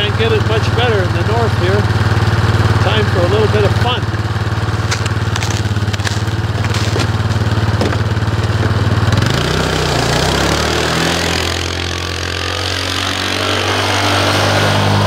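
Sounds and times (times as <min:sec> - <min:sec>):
engine idling: 0:00.0 - 0:12.6
footsteps crunching in snow: 0:04.6 - 0:08.9.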